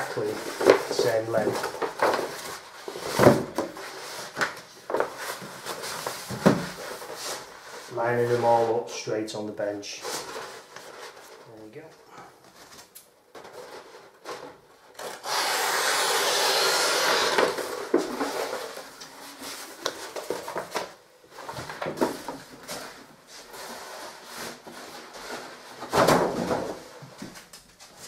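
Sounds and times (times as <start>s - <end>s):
paper rustling and crackling: 0.0s - 8.6s, 10.1s - 11.7s, 17.2s - 28.0s.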